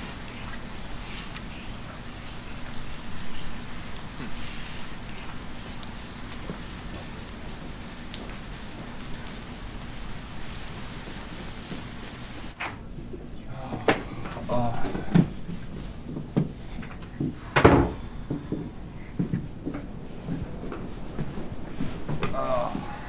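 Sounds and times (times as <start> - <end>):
steady rain falling: 0.0 - 12.6, 13.6 - 17.2, 18.3 - 23.0.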